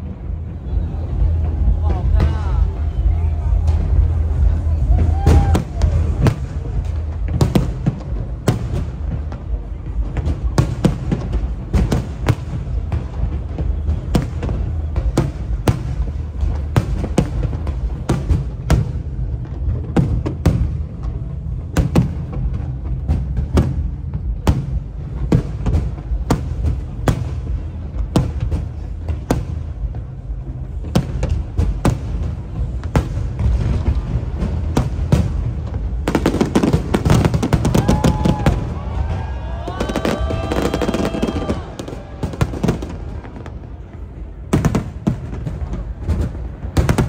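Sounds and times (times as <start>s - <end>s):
background music with heavy bass: 0.0s - 9.1s
low rumble: 0.0s - 10.6s
fireworks bursting with sharp bangs: 0.0s - 47.0s.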